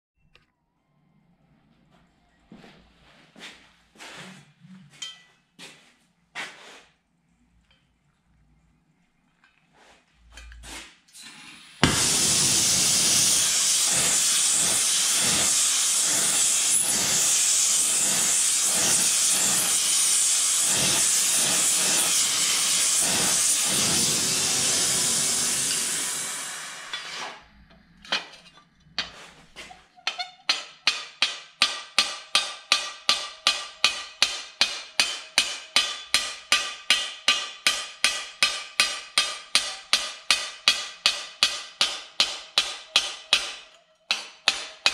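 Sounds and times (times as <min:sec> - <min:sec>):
gas torch hissing: 0:11.2 - 0:27.6
hammer striking metal plate: 0:11.8 - 0:17.2, 0:30.1 - 0:44.9.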